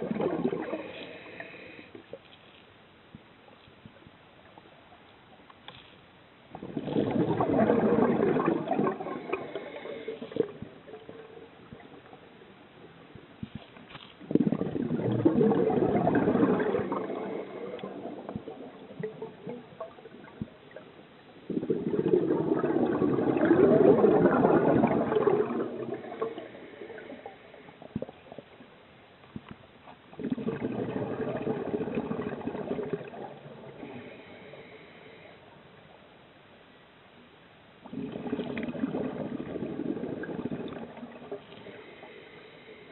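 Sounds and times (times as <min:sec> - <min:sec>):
exhaled bubbles underwater: 0:00.0 - 0:01.9, 0:06.5 - 0:28.7, 0:30.1 - 0:34.7, 0:37.8 - 0:42.2.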